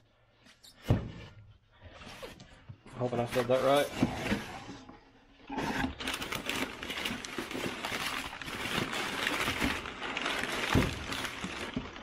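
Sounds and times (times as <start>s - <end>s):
packaging rustling and crinkling: 2.2s - 4.7s, 5.6s - 12.0s.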